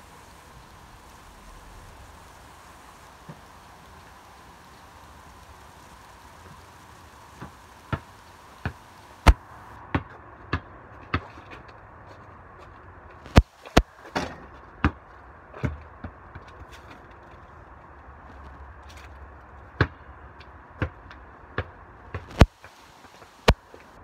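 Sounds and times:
basketball bouncing on concrete: 0:07.3 - 0:11.3, 0:14.8 - 0:15.0, 0:15.6 - 0:16.4, 0:19.8 - 0:20.0, 0:20.8 - 0:21.0, 0:21.6 - 0:22.5.

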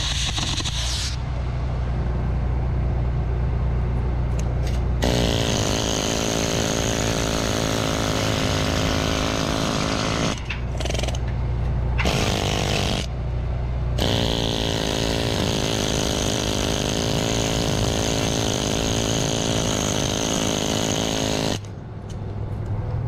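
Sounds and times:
steady low hum: 0:00.3 - 0:09.2, 0:10.3 - 0:15.9.

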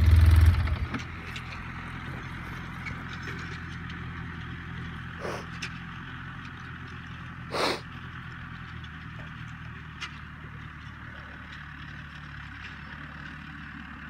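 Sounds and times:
tractor diesel engine droning: 0:00.0 - 0:14.0
puff of noise on microphone: 0:05.2 - 0:05.5, 0:07.5 - 0:07.8.

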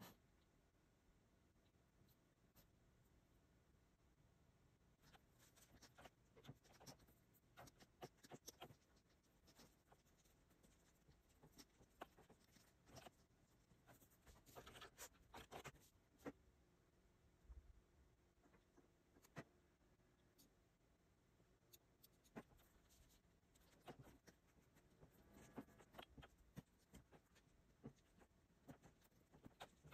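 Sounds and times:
stylus tapping and scratching: 0:05.0 - 0:16.4, 0:21.6 - 0:29.9.

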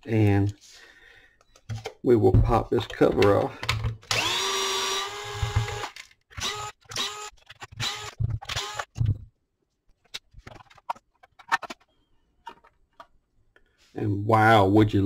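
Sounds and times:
cordless screwdriver running: 0:04.1 - 0:08.9.

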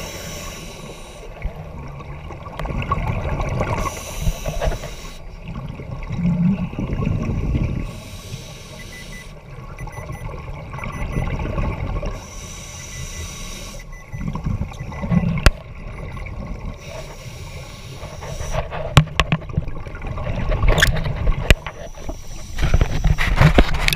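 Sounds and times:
diver breathing through regulator: 0:00.0 - 0:01.3, 0:03.8 - 0:05.3, 0:07.8 - 0:09.4, 0:12.2 - 0:13.9, 0:16.8 - 0:18.7, 0:21.8 - 0:23.5.

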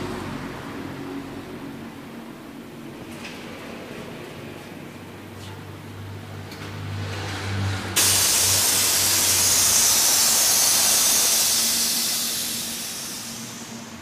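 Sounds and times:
compressed air hissing: 0:08.0 - 0:14.0.

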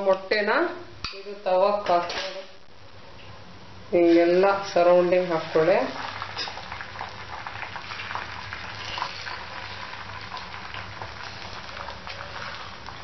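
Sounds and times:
egg sizzling in oil: 0:04.1 - 0:13.0.

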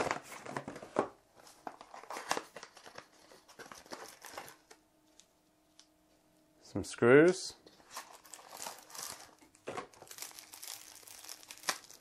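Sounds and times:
cardboard and plastic packaging crinkling: 0:00.0 - 0:04.8, 0:07.7 - 0:12.0.

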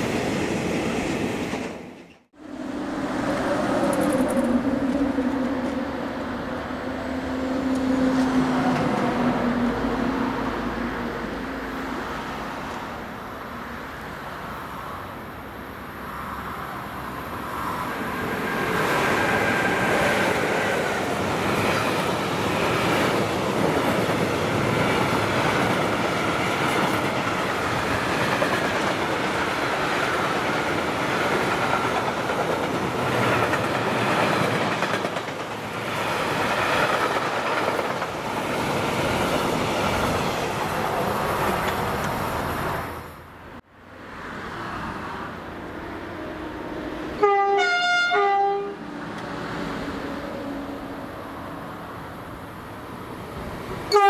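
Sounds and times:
train wheels clattering over rails: 0:18.7 - 0:42.3.

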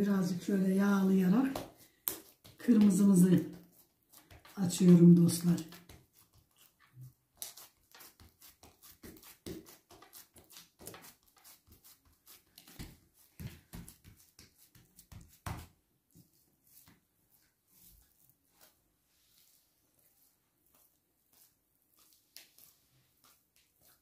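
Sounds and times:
hands patting dough: 0:00.3 - 0:18.8.

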